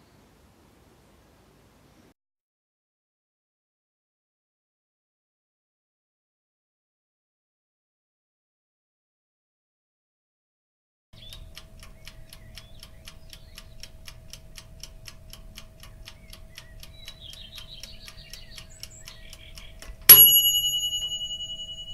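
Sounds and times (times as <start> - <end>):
faint chirps: 11.2 - 14.6, 15.3 - 20.3
fast ticking: 11.2 - 21.9
bright bell ding: 20.1 - 21.9.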